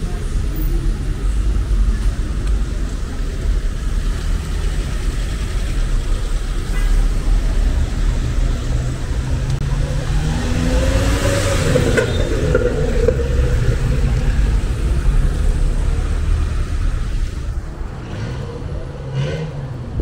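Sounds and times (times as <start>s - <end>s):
low rumble of traffic: 0.0s - 20.0s
vehicle passing close by: 7.4s - 20.0s.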